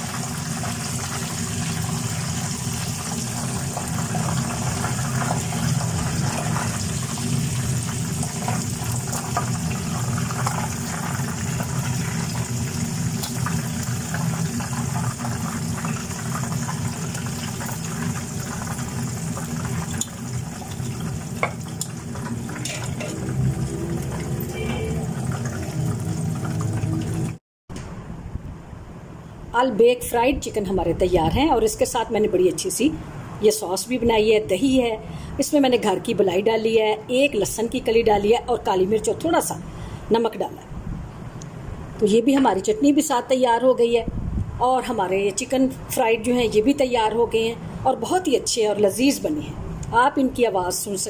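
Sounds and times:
chicken deep-frying in oil: 0.0s - 27.4s.

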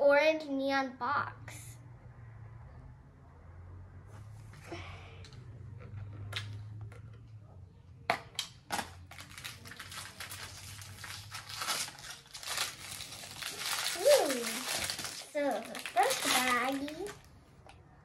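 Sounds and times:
packaging snapping: 8.4s - 17.2s
wrapping crinkling: 8.9s - 17.3s.

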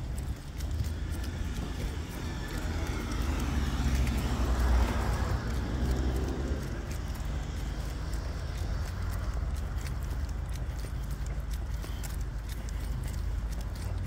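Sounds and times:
car passing: 0.0s - 14.0s
footsteps on sidewalk: 0.0s - 14.0s.

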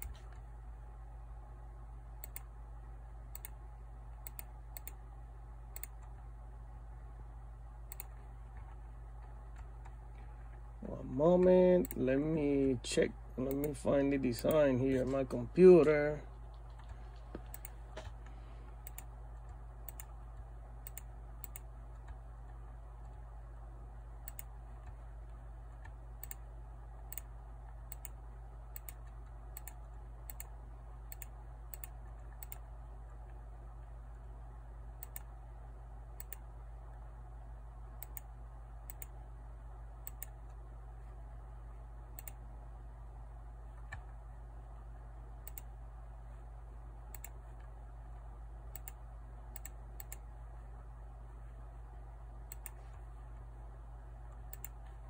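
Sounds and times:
keyboard typing clicks: 0.0s - 0.5s, 2.2s - 2.5s, 3.3s - 3.6s, 4.2s - 5.0s, 5.7s - 6.3s, 7.8s - 10.6s, 13.4s - 23.2s, 24.2s - 26.5s, 27.9s - 33.4s, 35.0s - 35.3s, 36.2s - 36.5s, 38.0s - 39.2s, 40.0s - 40.6s, 42.1s - 42.4s, 45.4s - 45.7s, 47.1s - 47.7s, 48.7s - 50.3s, 52.4s - 53.1s, 54.3s - 55.0s
steady low hum: 0.0s - 55.0s.

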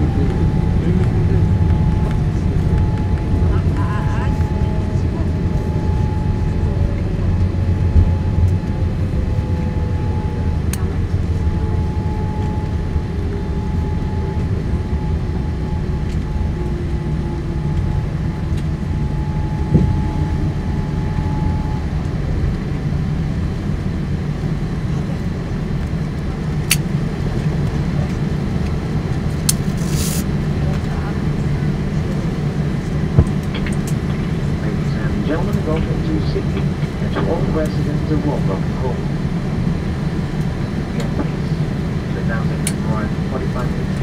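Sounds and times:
steady high tone: 0.0s - 25.4s
jet engine whine falling: 0.0s - 44.0s
low cabin rumble: 0.0s - 44.0s.

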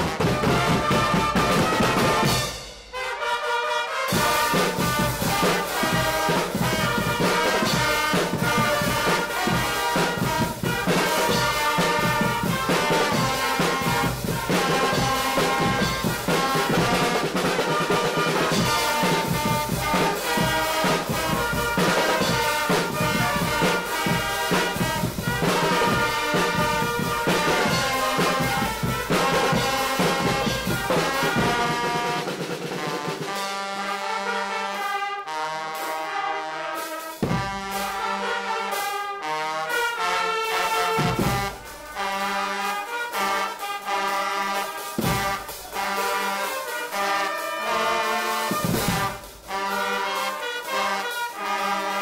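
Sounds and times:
bass drums and cymbals: 0.0s - 3.0s, 4.1s - 33.6s, 36.9s - 38.2s, 40.6s - 47.4s
drum kit: 0.0s - 52.0s
trumpets and trombones: 0.0s - 52.0s.

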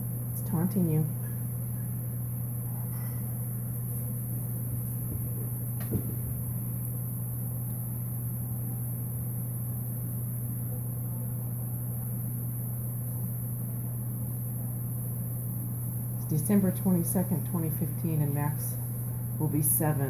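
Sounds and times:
low room hum: 0.0s - 20.0s.

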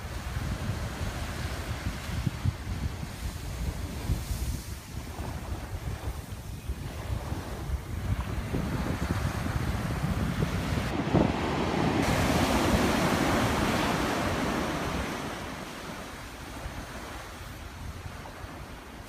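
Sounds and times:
surf breaking on sand: 0.0s - 19.0s
wind buffeting microphone: 0.0s - 19.0s.

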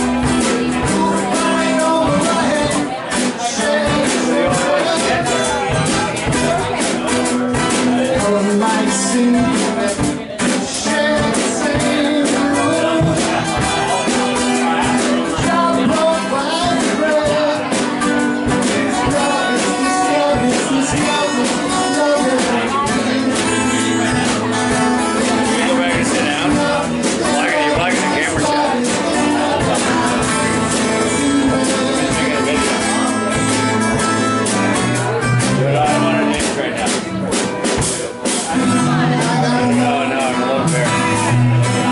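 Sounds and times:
acoustic guitar: 0.0s - 41.9s
drum kit playing: 0.0s - 41.9s.

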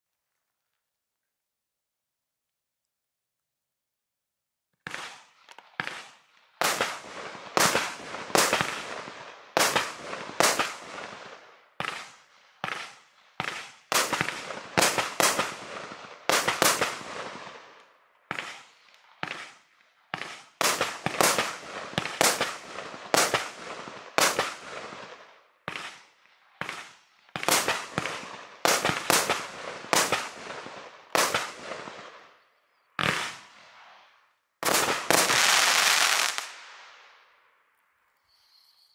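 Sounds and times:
firework bangs: 4.8s - 32.2s, 33.0s - 33.8s, 34.6s - 37.0s.

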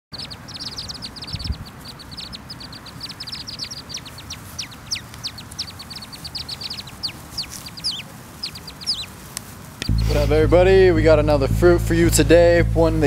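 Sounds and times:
ducklings peeping: 0.1s - 13.0s
low rumble: 9.9s - 13.0s.

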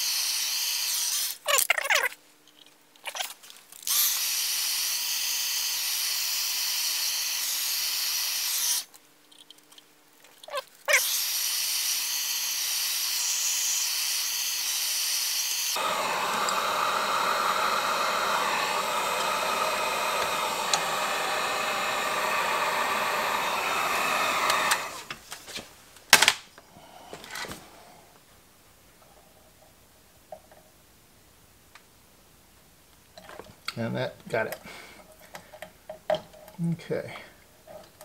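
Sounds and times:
heat gun blowing: 0.0s - 1.4s, 3.8s - 8.9s, 11.0s - 25.2s.

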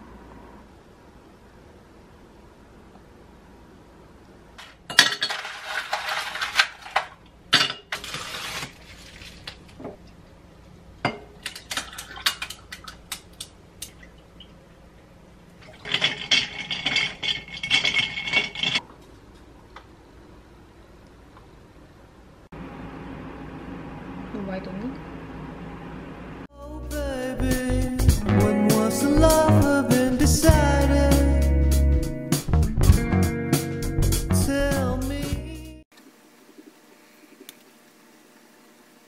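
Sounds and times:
ice and glassware clinking: 4.6s - 8.6s, 15.8s - 18.8s.

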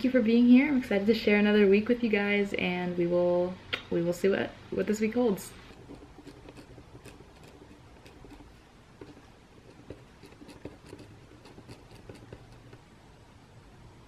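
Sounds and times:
low room hum: 0.0s - 14.0s
pen scratching on paper: 5.6s - 12.8s.

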